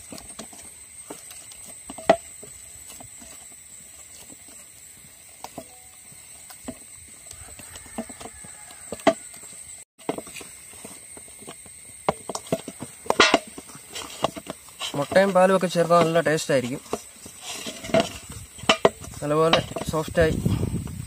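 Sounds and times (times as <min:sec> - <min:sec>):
hands kneading dough in a bowl: 0:12.2 - 0:20.4.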